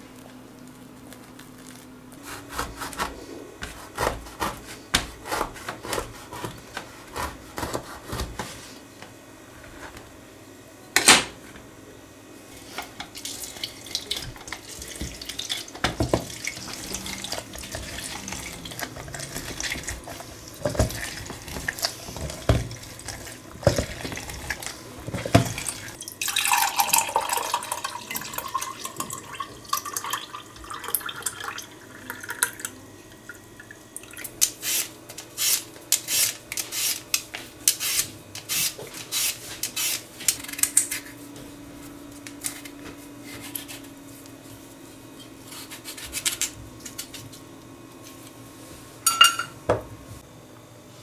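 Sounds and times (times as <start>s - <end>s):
squeezing fruit on hand juicer: 0.1s - 8.8s, 12.5s - 29.6s
juice splashing: 13.1s - 22.0s
peeler scraping potato: 34.4s - 41.1s, 45.4s - 47.2s.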